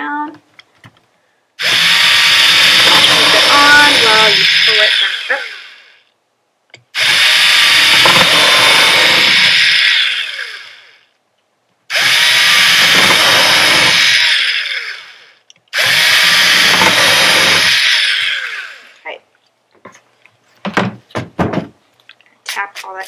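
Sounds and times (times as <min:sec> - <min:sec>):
cordless drill running: 0:01.6 - 0:06.0, 0:07.0 - 0:11.0, 0:11.9 - 0:19.0.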